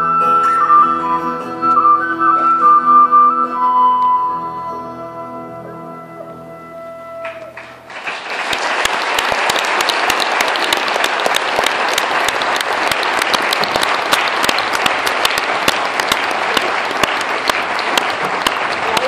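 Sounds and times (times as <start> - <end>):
music held notes: 0.0 - 7.8
audience applause: 7.2 - 19.0.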